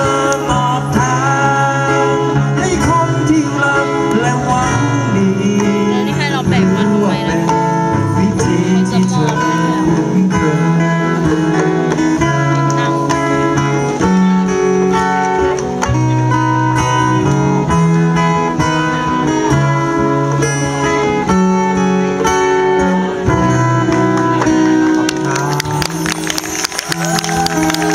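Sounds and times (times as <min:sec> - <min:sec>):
acoustic guitars: 0:00.0 - 0:27.9
held melody line: 0:00.0 - 0:27.9
percussion: 0:23.3 - 0:27.9.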